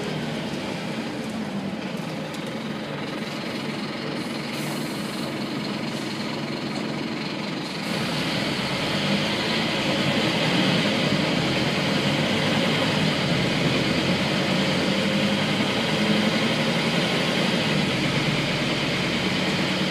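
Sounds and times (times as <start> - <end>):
bus diesel engine running: 0.0 - 19.9.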